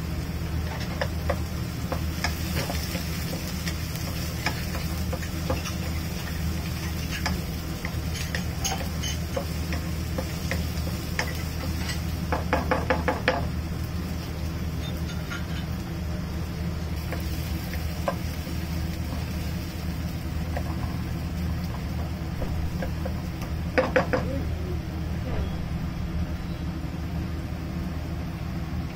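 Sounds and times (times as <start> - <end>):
steady low hum: 0.0 - 28.9
utensils and dishes knocking: 8.1 - 10.6, 11.2 - 13.5, 22.4 - 24.4.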